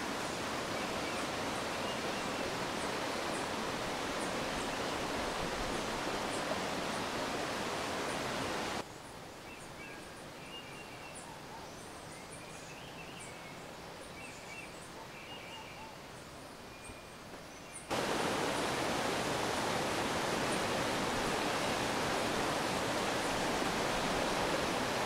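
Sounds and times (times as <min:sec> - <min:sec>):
rushing stream water: 0:00.0 - 0:09.4, 0:17.8 - 0:25.0.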